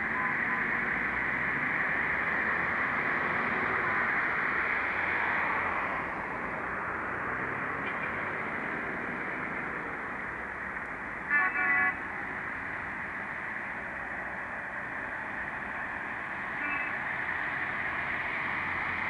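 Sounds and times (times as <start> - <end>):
road traffic rushing: 0.0 - 19.0
car horn toots: 11.3 - 12.0.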